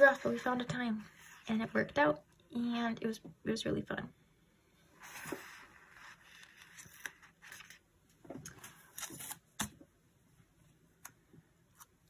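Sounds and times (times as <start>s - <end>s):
paper rustling: 5.0s - 7.8s, 8.4s - 9.7s.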